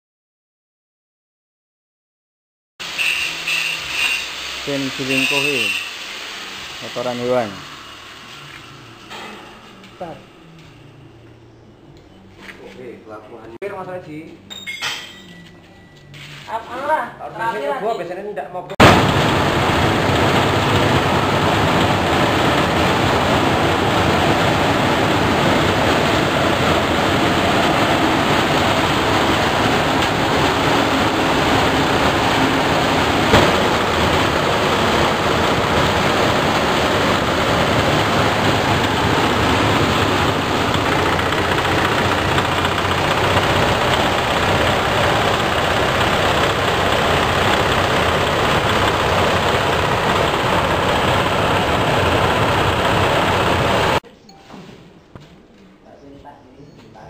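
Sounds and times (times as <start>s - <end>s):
manure grinding machine running: 2.8s - 10.7s, 18.8s - 54.0s.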